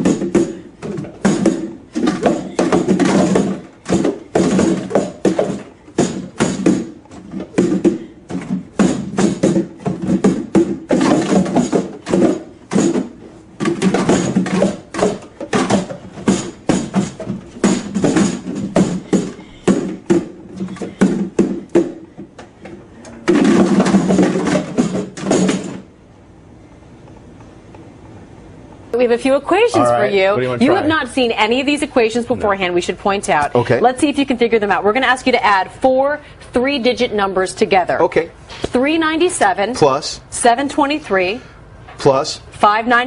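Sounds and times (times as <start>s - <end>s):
plastic cups clattering: 0.0s - 25.8s.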